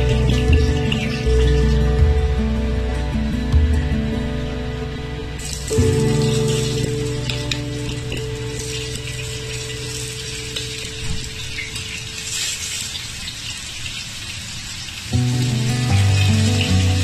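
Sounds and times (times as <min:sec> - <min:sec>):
background music: 0:00.0 - 0:12.9, 0:15.2 - 0:17.0
onions sizzling in hot oil: 0:05.4 - 0:17.0.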